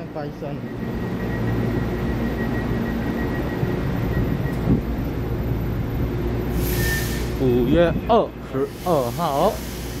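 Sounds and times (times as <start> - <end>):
train equipment humming: 0.0 - 10.0
air hiss: 6.5 - 7.4, 8.7 - 10.0.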